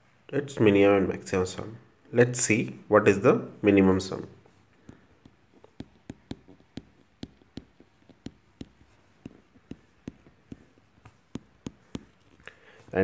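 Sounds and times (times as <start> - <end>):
stylus tapping on screen: 4.7 - 13.0.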